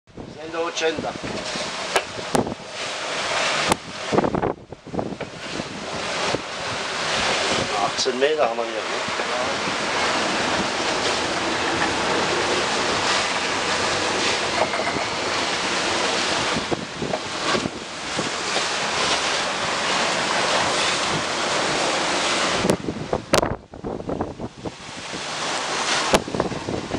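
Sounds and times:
sea water rushing: 0:00.1 - 0:26.9
wind buffeting microphone: 0:00.1 - 0:26.9.

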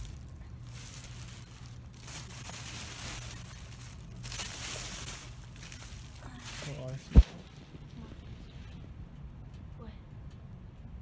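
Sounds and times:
plastic bags rustling: 0:00.0 - 0:07.2.

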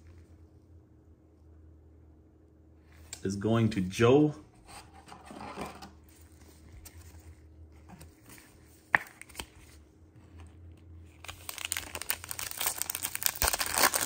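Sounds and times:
card handling rustles: 0:06.0 - 0:14.0
foil wrapper crinkling: 0:11.1 - 0:14.0.

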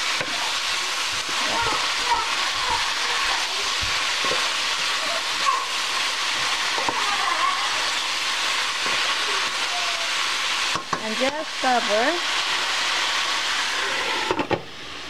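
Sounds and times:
stir-fry sizzling in a skillet: 0:00.0 - 0:15.0
wooden spatula scraping: 0:00.1 - 0:09.7.

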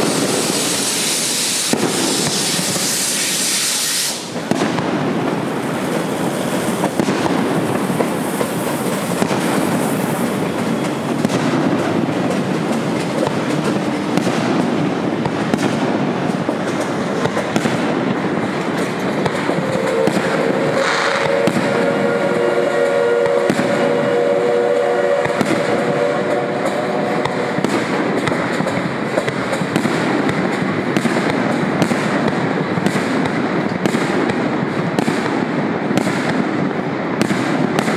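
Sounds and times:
train whistle: 0:00.0 - 0:04.4, 0:19.4 - 0:27.9.

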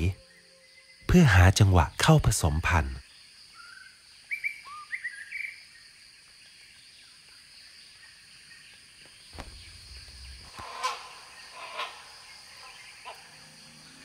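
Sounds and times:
high insect drone: 0:00.0 - 0:14.0
whistled bird chirps: 0:03.5 - 0:05.8
louder bird call: 0:09.4 - 0:14.0.

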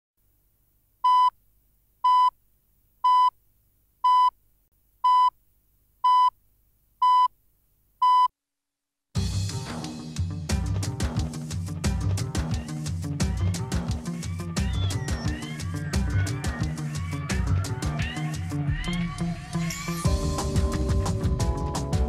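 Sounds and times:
theme music with drums: 0:09.2 - 0:18.9, 0:19.5 - 0:22.0.

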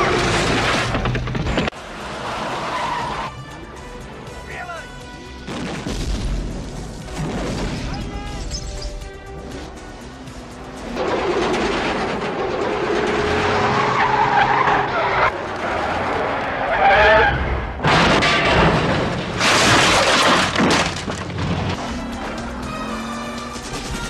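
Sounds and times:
car engines running: 0:00.0 - 0:04.5, 0:09.3 - 0:24.0
tyres skidding and squealing: 0:00.0 - 0:05.0, 0:07.6 - 0:24.0.

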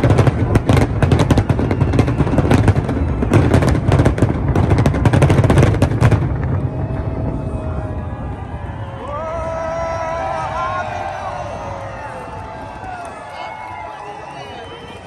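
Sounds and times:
fireworks bangs and crackles: 0:00.0 - 0:15.0
low rumble: 0:04.0 - 0:12.8.

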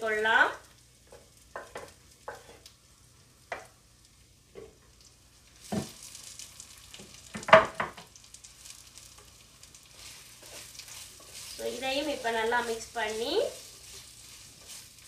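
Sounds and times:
onions sizzling in hot oil: 0:00.0 - 0:15.0
wooden spatula scraping pot: 0:01.1 - 0:02.6, 0:09.9 - 0:15.0.

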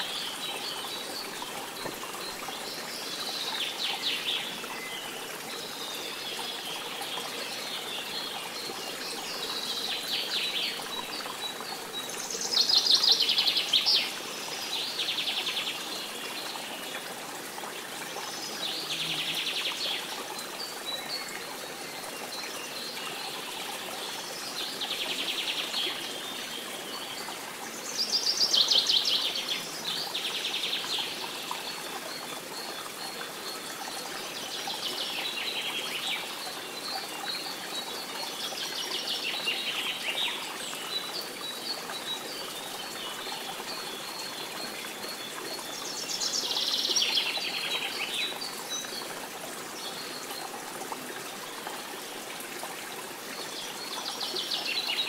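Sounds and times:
running water: 0:00.0 - 0:55.0.

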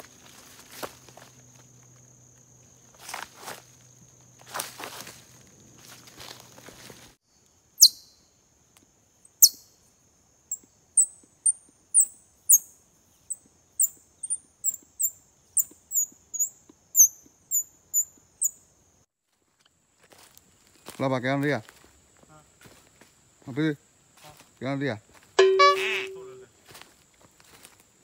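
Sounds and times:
footsteps in dry leaves: 0:00.0 - 0:02.0, 0:02.8 - 0:07.2, 0:20.0 - 0:22.0, 0:26.6 - 0:28.0.

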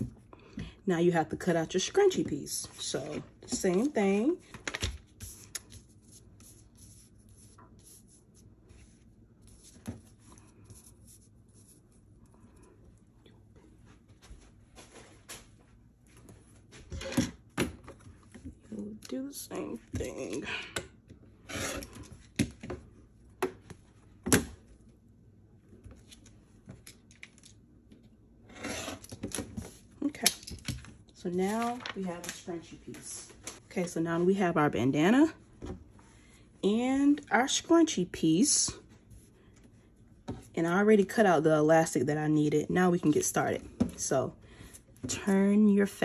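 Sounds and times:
paper and fabric rustling: 0:31.2 - 0:34.4.

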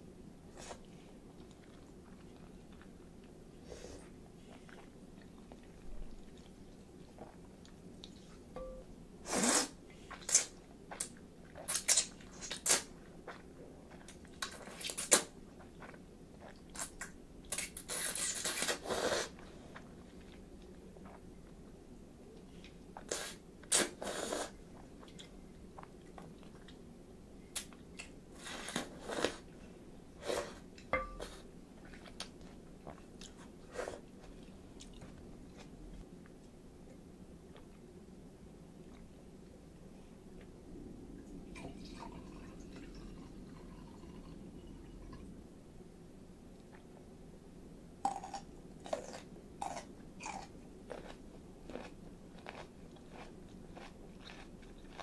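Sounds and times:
slurping noodles: 0:09.3 - 0:10.5, 0:17.9 - 0:19.4
chewing and lip smacking: 0:48.1 - 0:55.0.

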